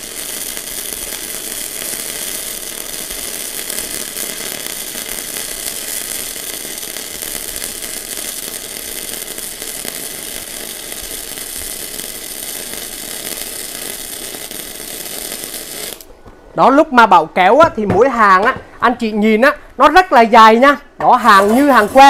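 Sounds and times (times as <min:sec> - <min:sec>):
welding arc crackling: 0:00.0 - 0:16.1, 0:21.1 - 0:22.0.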